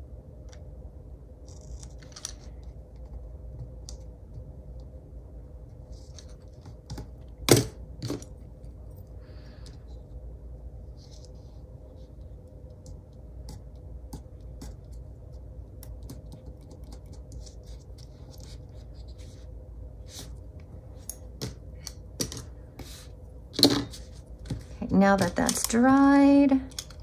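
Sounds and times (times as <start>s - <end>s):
low steady hum: 0.0s - 27.0s.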